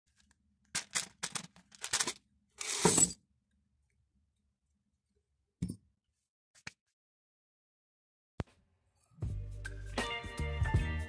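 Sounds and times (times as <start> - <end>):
metal screws clinking in pipe: 0.8 - 3.2
screws spilling onto table: 0.8 - 3.2.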